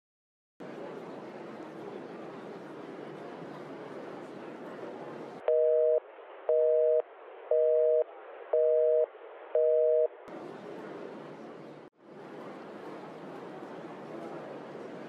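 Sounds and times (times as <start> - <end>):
telephone busy signal beeping: 5.5 - 10.1.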